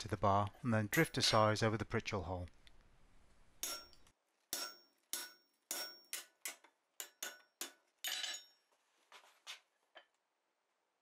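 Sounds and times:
hammer striking punch on hot steel: 3.6s - 7.8s.

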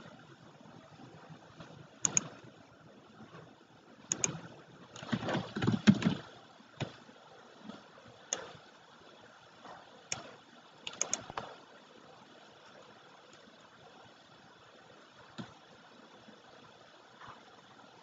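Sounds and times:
computer mouse clicking: 2.0s - 2.5s, 4.1s - 6.2s, 8.3s - 8.6s, 10.1s - 11.6s, 15.3s - 15.6s.

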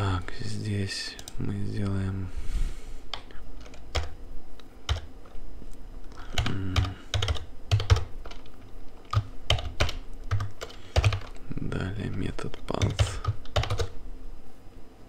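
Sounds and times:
typing on keyboard: 3.1s - 4.2s, 4.9s - 5.1s, 6.3s - 11.4s, 12.8s - 14.0s.

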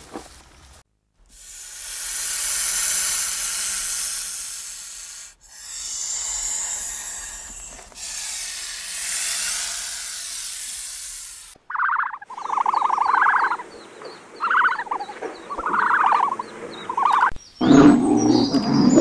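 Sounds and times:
rattlesnake tail rattle buzzing: 1.2s - 11.6s.

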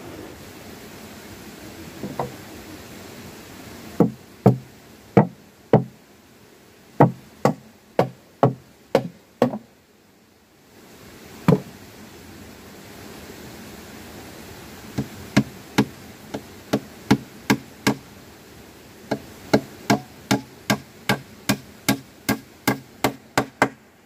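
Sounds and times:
steady background hiss: 0.0s - 24.0s
sharp knocks on something solid: 5.2s - 5.9s, 7.0s - 9.6s, 11.5s - 11.7s, 19.1s - 23.8s.

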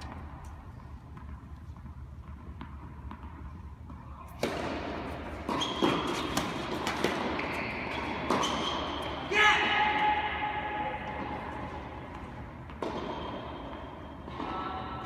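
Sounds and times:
tennis ball bouncing on court: 0.0s - 9.2s, 11.0s - 15.0s
racket hitting tennis ball: 0.0s - 9.3s, 11.0s - 14.9s
shoe squeaks: 5.4s - 6.5s, 7.4s - 9.1s.

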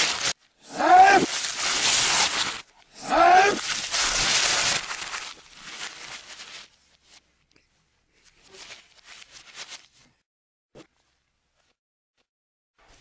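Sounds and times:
book pages rustling: 3.6s - 7.3s, 8.2s - 10.2s.

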